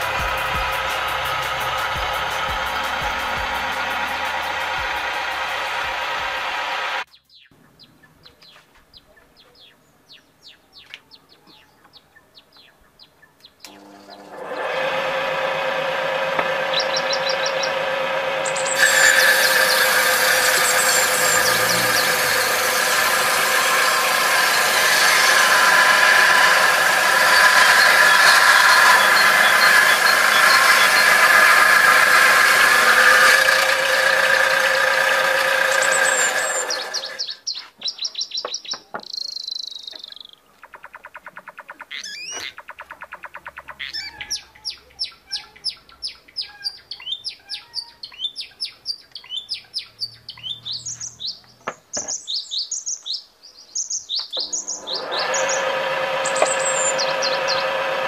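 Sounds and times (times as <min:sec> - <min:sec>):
table saw whining: 0:00.0 - 0:07.1, 0:13.6 - 0:37.4, 0:54.4 - 0:58.0
birds chirping: 0:00.0 - 0:14.4, 0:16.6 - 0:57.8.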